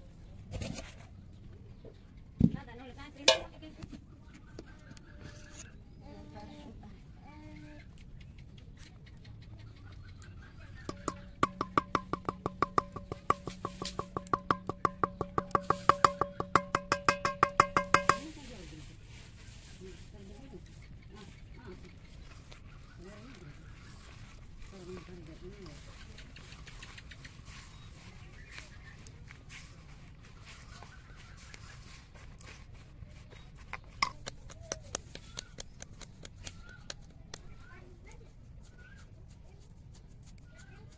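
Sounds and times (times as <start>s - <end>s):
light knocks against metal bowl: 3.3s - 3.5s, 10.9s - 18.4s
wood block percussion beat: 10.9s - 18.4s
dough squishing: 10.9s - 18.7s, 21.3s - 37.6s.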